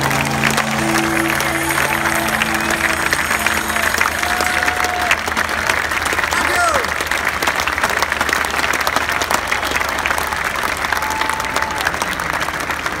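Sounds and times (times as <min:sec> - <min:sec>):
crowd applauding and cheering: 0:00.0 - 0:13.0.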